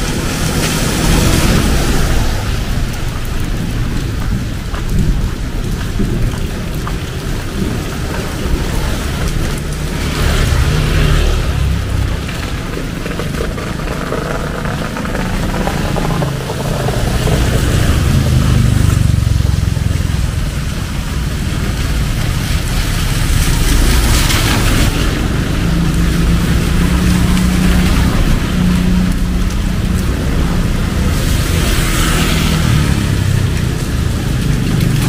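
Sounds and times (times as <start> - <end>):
vehicles passing: 0.0 - 35.0
steady engine hum: 10.6 - 35.0.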